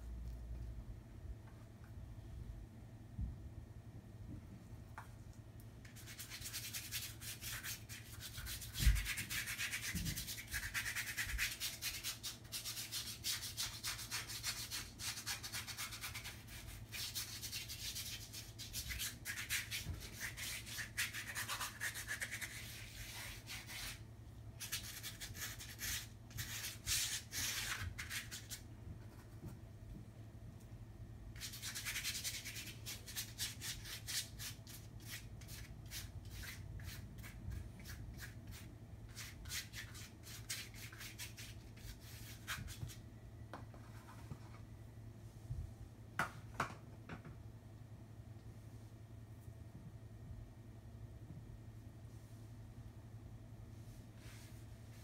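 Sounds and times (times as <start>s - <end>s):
paint scrubbing on paper: 5.9s - 24.0s.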